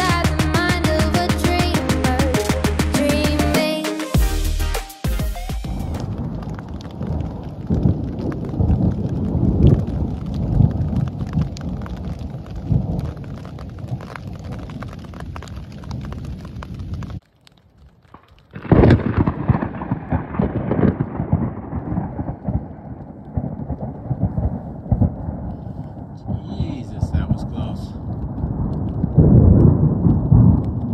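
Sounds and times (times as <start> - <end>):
loud thunderclap: 5.6 - 13.2, 18.5 - 30.9
thunder rumbling: 5.6 - 17.2, 18.1 - 30.9.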